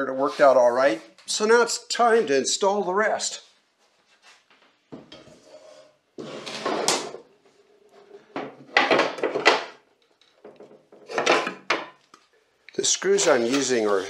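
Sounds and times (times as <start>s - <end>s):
panel scraping and knocking on table: 4.9s - 7.3s.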